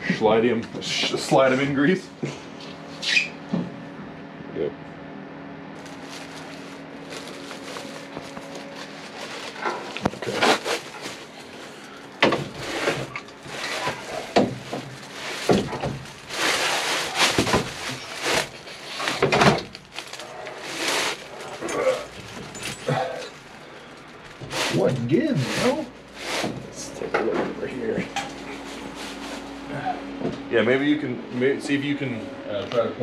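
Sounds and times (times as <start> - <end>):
metal scraping and rubbing: 12.4 - 15.5.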